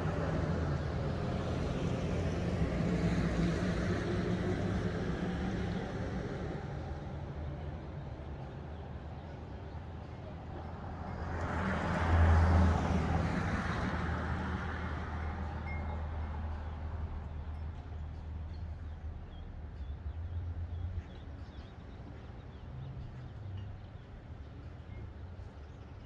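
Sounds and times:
vehicle passing on highway: 10.8s - 17.5s.

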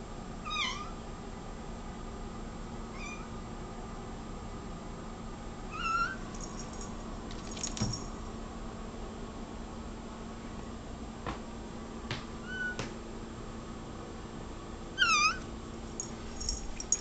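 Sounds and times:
cat meowing: 0.4s - 1.0s, 3.0s - 3.3s, 5.7s - 6.2s, 12.4s - 12.8s, 15.0s - 15.4s.

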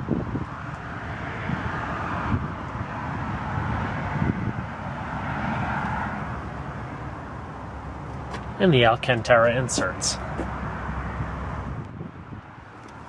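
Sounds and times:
wind buffeting microphone: 0.0s - 13.0s
steady outdoor hiss: 5.8s - 13.0s.

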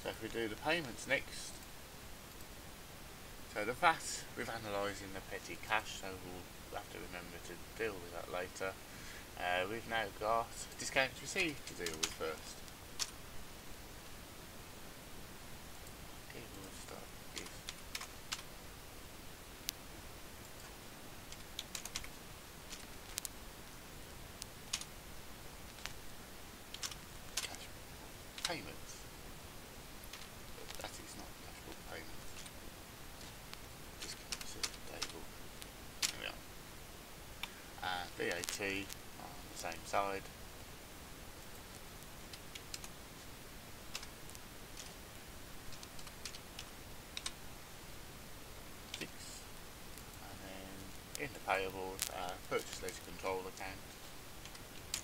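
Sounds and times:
low steady hiss: 0.0s - 55.0s
keyboard keys clicking: 21.3s - 22.1s.

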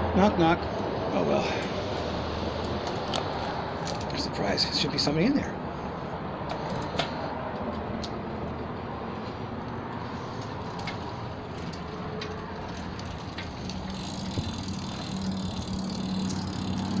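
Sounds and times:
outdoor background noise: 0.0s - 17.0s
low steady hum: 7.8s - 17.0s.

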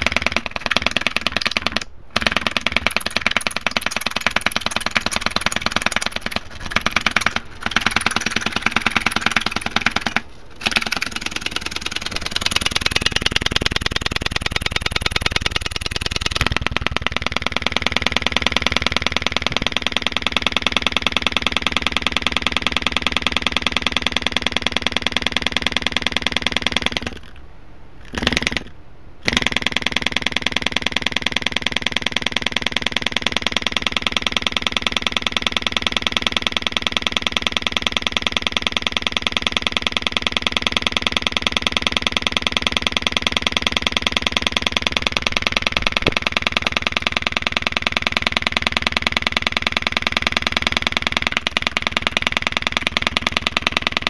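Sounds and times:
distorted speaker buzz: 2.1s - 20.3s.

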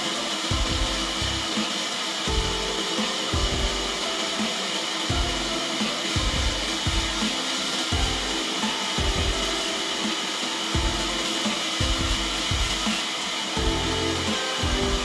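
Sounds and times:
band sawmill whirring: 0.0s - 15.0s
music with low bass: 0.5s - 1.6s, 2.3s - 4.1s, 5.1s - 7.3s, 7.9s - 8.4s, 9.0s - 9.6s, 10.8s - 12.9s, 13.6s - 15.0s.

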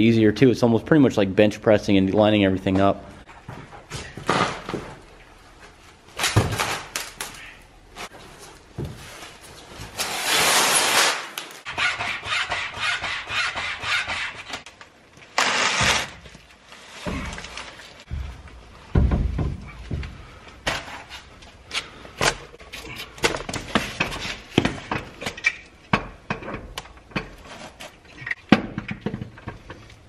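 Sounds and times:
knocks: 18.9s - 20.2s.

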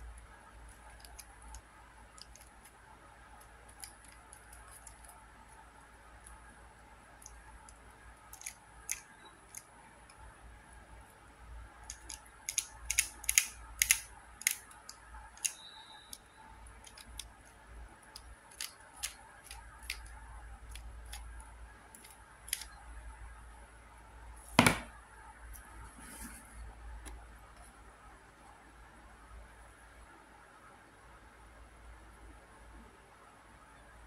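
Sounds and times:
plastic puzzle clicking: 3.3s - 5.2s, 7.2s - 10.2s, 11.8s - 22.8s
louder knock: 24.6s - 24.9s.

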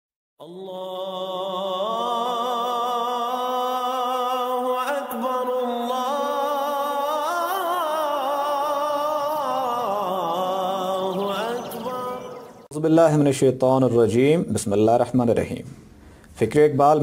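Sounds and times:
person chanting long notes: 5.4s - 12.7s.

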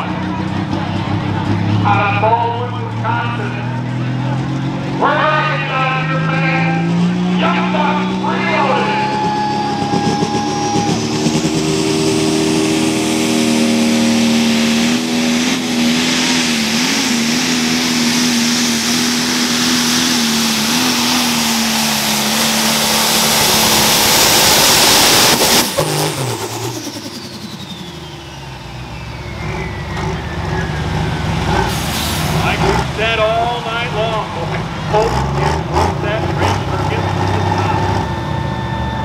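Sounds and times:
diesel engine running under load: 0.0s - 39.0s
turbo whistle: 26.9s - 30.8s, 37.8s - 39.0s.

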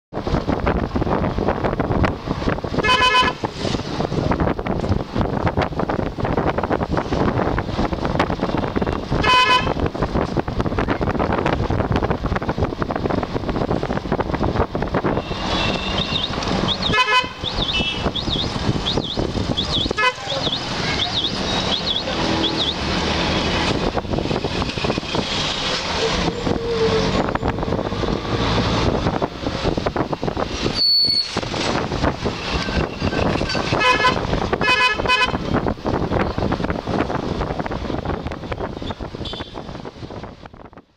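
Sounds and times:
road and wind noise: 0.1s - 40.9s
vehicle horns tooting: 2.8s - 3.4s, 9.2s - 9.8s, 15.1s - 22.8s, 32.8s - 35.4s, 39.2s - 39.7s.

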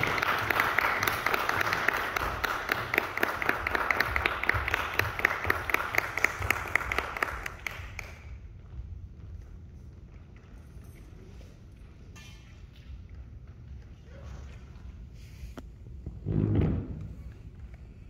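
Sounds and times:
hand claps applause: 0.0s - 8.4s.

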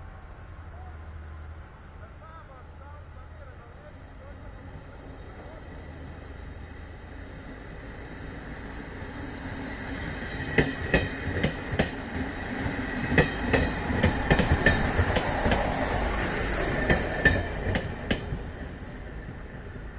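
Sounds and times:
train rumbling past: 0.0s - 19.9s
train wheels clicking on rail joints: 10.4s - 19.7s.

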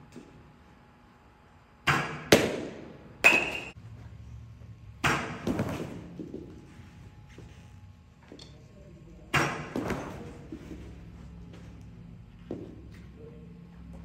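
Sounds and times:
balls thudding off mat and mitt: 5.0s - 6.6s.

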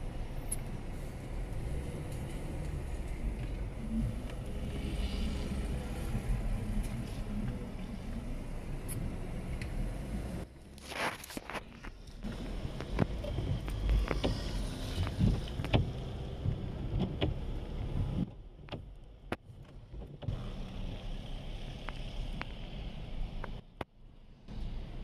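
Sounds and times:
sharp clicks and knocks: 11.4s - 17.4s, 18.0s - 20.4s.

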